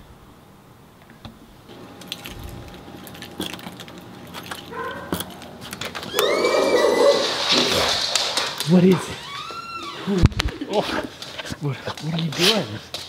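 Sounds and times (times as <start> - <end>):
dog whining: 4.6 - 8.0.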